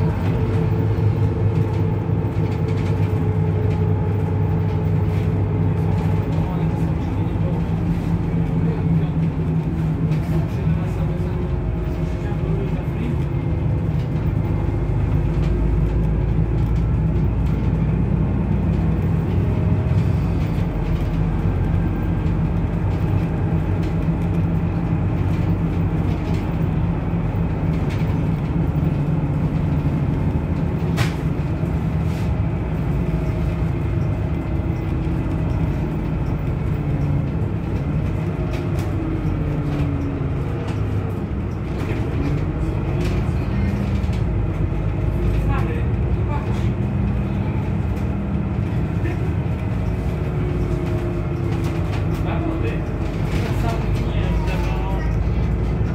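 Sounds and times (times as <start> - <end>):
bus engine and road rumble: 0.0 - 55.9.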